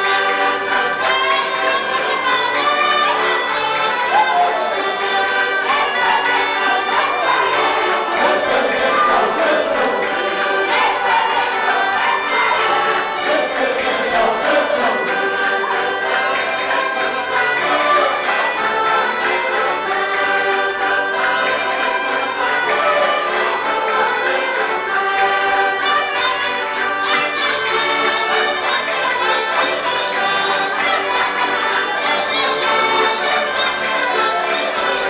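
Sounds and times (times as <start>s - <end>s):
lively folk dance music: 0.0s - 35.0s
people singing: 7.2s - 16.0s.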